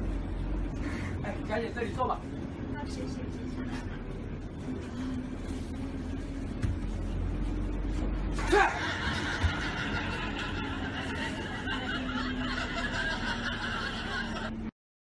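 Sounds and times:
bus engine humming: 0.0s - 14.7s
person crying out: 8.4s - 8.9s
people laughing: 8.4s - 14.7s.

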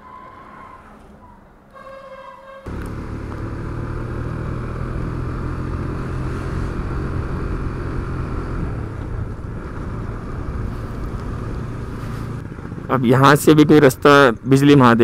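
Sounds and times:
wind and road noise: 0.0s - 15.0s
motorcycle engine running: 2.7s - 14.0s.

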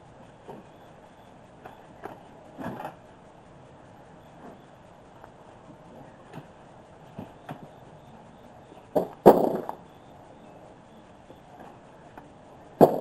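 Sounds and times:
knocks: 9.0s - 9.8s, 12.8s - 13.0s.

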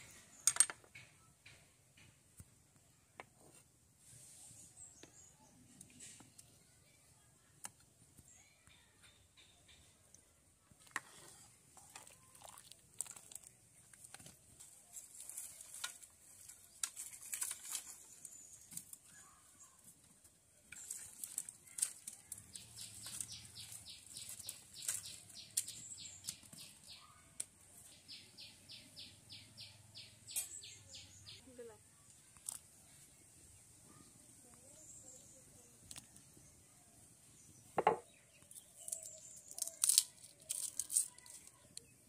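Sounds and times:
lentils boiling in a wok: 10.4s - 19.6s, 20.4s - 26.8s.

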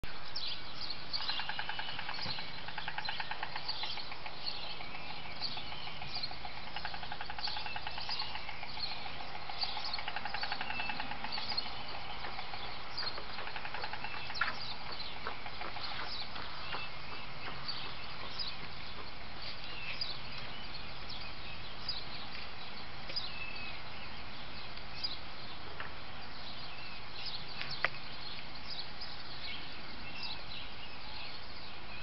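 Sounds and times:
small birds chirping: 0.0s - 32.0s
storks bill rattling: 1.3s - 19.7s.

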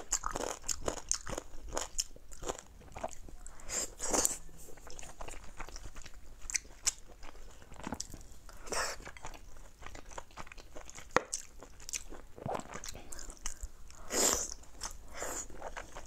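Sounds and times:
wet chewing with mouth clicks: 0.0s - 16.0s.

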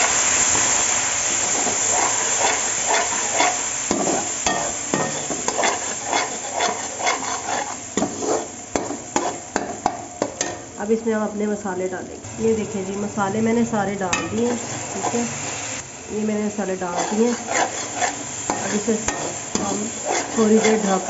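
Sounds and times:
onions sizzling in hot oil: 0.0s - 21.0s
metal spoon scraping a pan: 1.4s - 10.7s, 14.1s - 15.6s, 16.8s - 21.0s.

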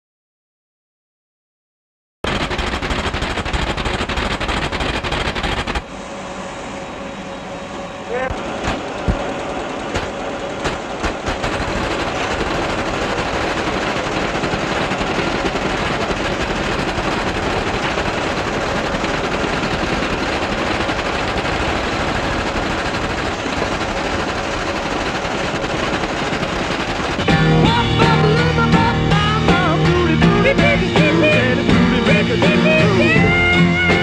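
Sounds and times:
impact printer chattering: 2.3s - 5.8s, 8.1s - 34.0s
rock music: 27.2s - 34.0s.

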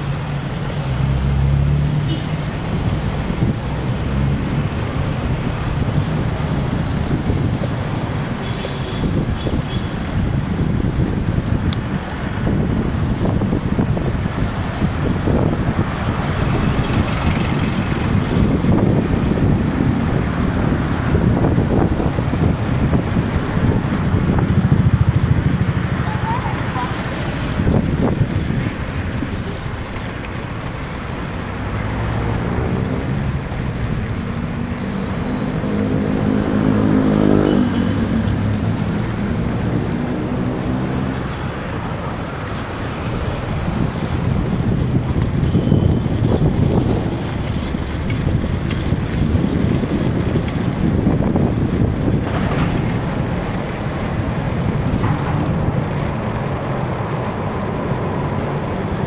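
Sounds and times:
cars passing: 0.0s - 59.0s
road and wind noise: 0.0s - 59.0s
motor vehicle passing close: 14.5s - 30.0s.

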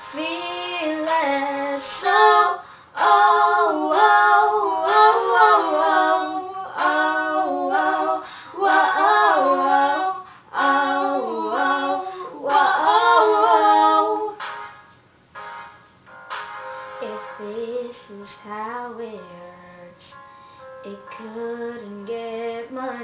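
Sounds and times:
girls singing together: 0.0s - 14.4s.

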